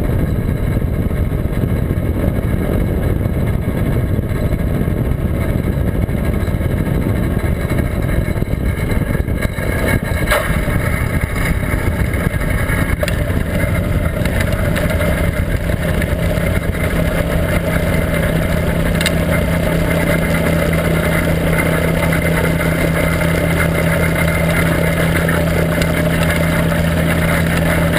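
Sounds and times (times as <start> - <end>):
wind rush: 0.0 - 27.2
two-stroke aircraft engine drone: 0.0 - 27.9
sharp knocks: 10.2 - 15.0.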